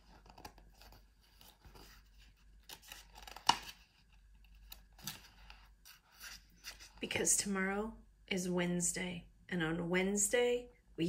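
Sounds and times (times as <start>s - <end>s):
paper page rustling: 0.0s - 7.0s.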